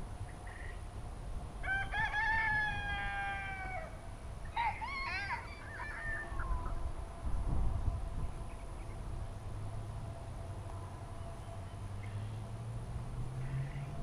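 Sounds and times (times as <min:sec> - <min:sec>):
rooster crowing: 0:01.6 - 0:06.8.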